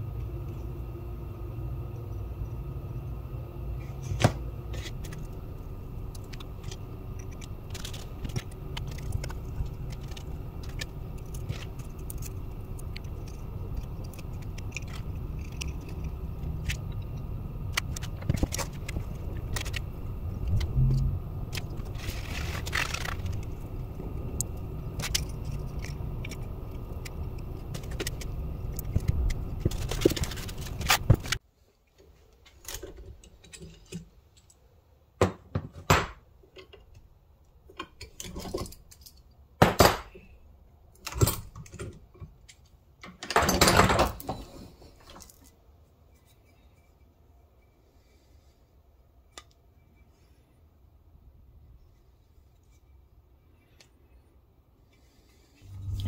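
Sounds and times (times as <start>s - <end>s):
steady low rumble: 0.0s - 31.4s, 55.5s - 56.0s.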